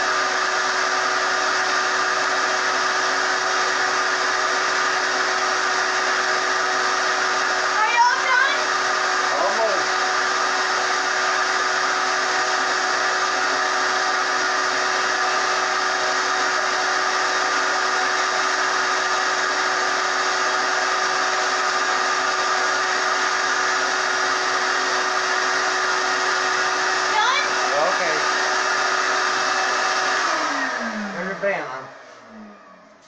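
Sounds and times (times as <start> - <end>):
shop vacuum running: 0.0 - 33.0.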